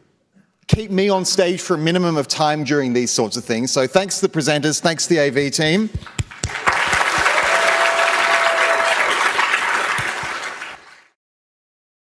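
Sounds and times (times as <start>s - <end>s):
audience applauding: 6.0s - 11.2s.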